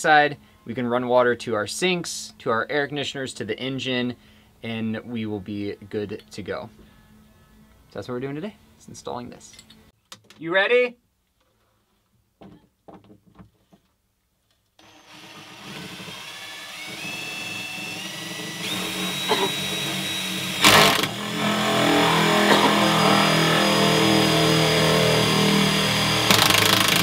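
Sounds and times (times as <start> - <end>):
drill with hole saw cutting: 14.8 - 27.0.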